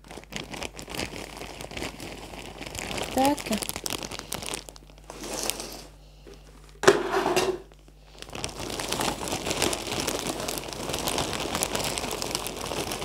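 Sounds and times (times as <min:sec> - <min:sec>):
plastic bag crinkling: 0:00.0 - 0:13.0
soil pouring into plastic pot: 0:05.1 - 0:05.9.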